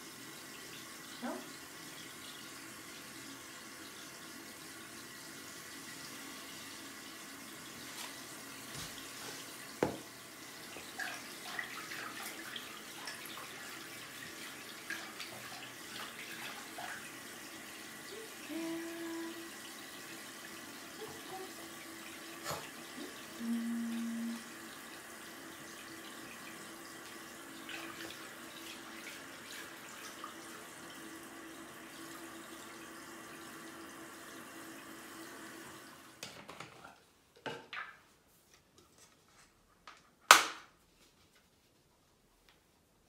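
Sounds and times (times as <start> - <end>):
water running into bin: 0.0 - 38.0.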